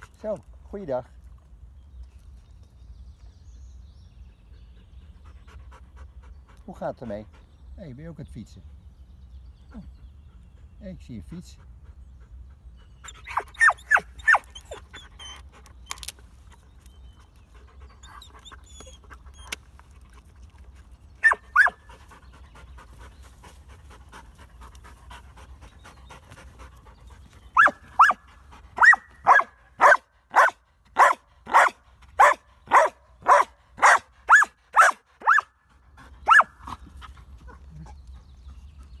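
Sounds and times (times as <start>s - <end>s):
dog panting hard: 4.4s - 7.8s, 11.4s - 13.9s, 17.1s - 19.6s, 21.6s - 27.6s.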